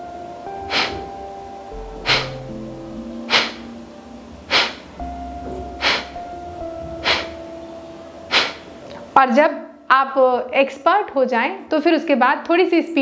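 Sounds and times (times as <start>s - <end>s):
soft background music: 0.0s - 13.0s
forceful nasal exhalations: 0.6s - 1.1s, 1.9s - 2.5s, 3.2s - 3.7s, 4.5s - 4.9s, 5.8s - 6.2s, 7.0s - 7.4s, 8.3s - 9.1s.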